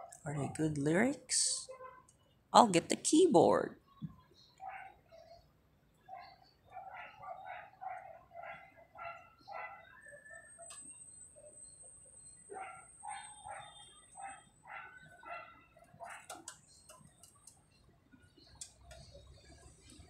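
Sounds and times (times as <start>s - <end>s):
dog barking: 4.6s - 5.0s, 6.1s - 10.0s, 12.5s - 16.4s.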